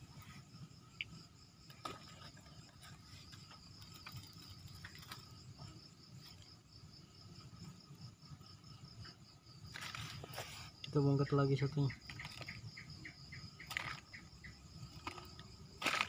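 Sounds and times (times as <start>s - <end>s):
crickets trilling: 0.0s - 16.0s
rustling wet leaves: 9.7s - 10.8s, 13.6s - 16.0s.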